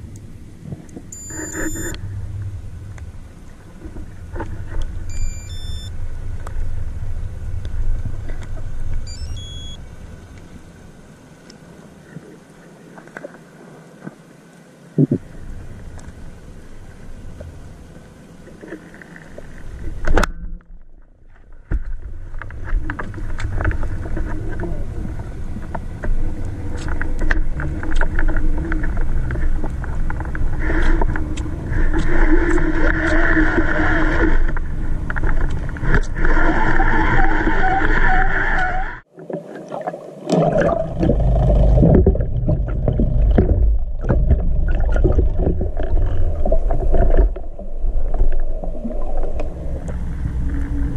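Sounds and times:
steady hum: 0.0s - 36.5s, 40.8s - 50.9s
underwater water noise: 0.0s - 50.9s
low rushing and splashing: 22.0s - 50.9s.

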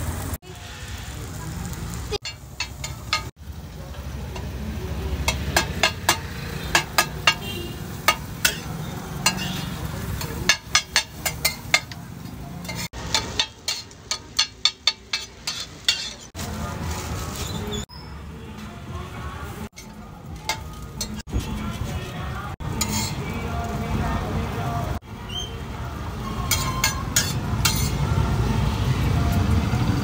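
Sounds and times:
frying sizzle: 0.0s - 17.9s, 19.4s - 30.0s
spatula clacking on griddle: 2.2s - 3.3s, 5.2s - 16.4s, 19.7s - 21.3s, 22.7s - 23.3s, 26.5s - 28.0s.

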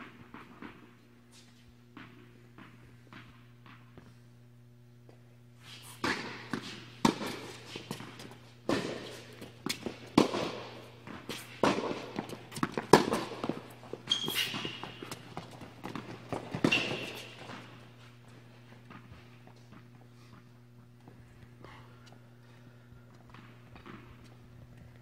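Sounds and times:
racket hitting tennis ball: 5.8s - 18.1s
ball bouncing: 6.0s - 20.0s.

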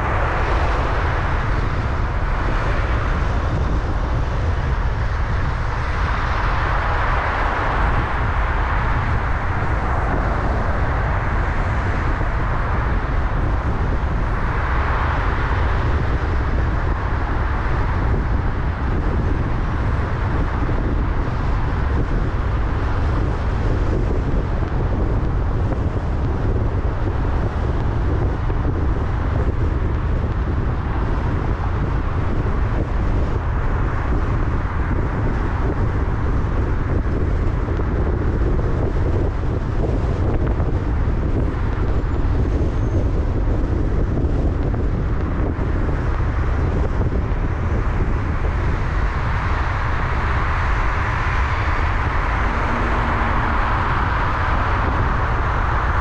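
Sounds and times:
car engine noise: 0.0s - 56.0s
road and tyre rumble: 0.0s - 56.0s
broad rushing sound: 49.3s - 56.0s.

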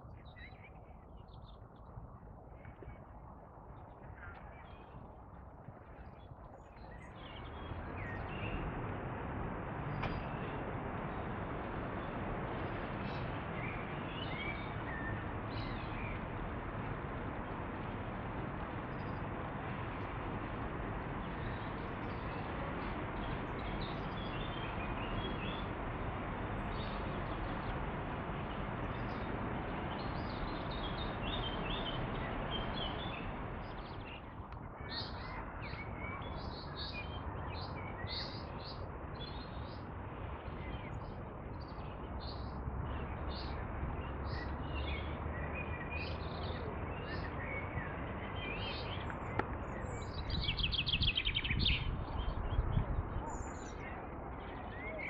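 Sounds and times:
birds singing and chirping: 44.2s - 55.0s.

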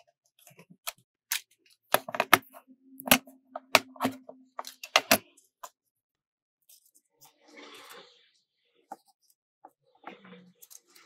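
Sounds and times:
plastic cases clicking and knocking: 1.9s - 5.3s.

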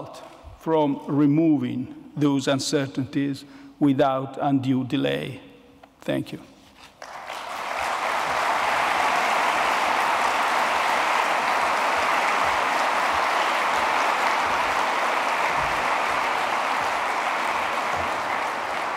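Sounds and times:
audience applauding: 7.0s - 18.9s.

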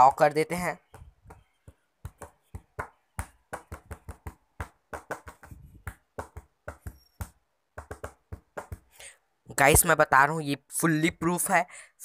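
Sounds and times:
rapid sharp taps: 0.8s - 9.0s.

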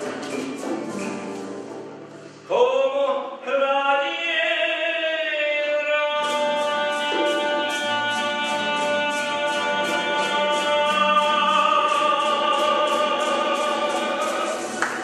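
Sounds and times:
guitars strumming: 0.0s - 2.4s, 6.1s - 15.0s.

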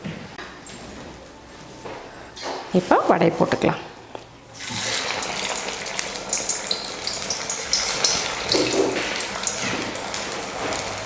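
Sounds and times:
patty sizzling in hot oil: 4.6s - 11.0s.

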